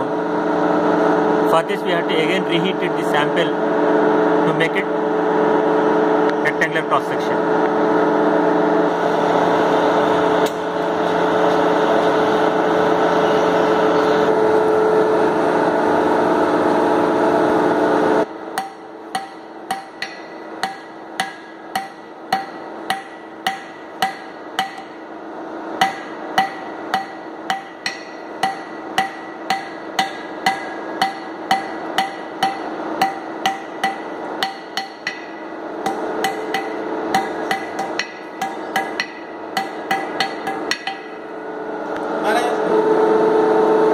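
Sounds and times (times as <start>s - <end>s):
forge air blower rushing: 0.0s - 43.9s
hammer blows on anvil: 18.6s - 25.0s, 25.8s - 41.3s.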